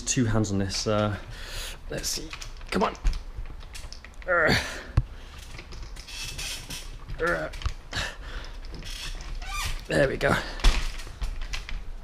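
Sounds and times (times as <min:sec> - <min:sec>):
repair stand tubes clicking and knocking: 0:02.0 - 0:09.9.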